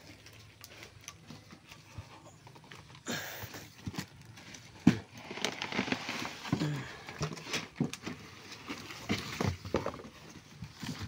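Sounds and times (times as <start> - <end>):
bubble wrap crinkling: 3.6 - 11.0.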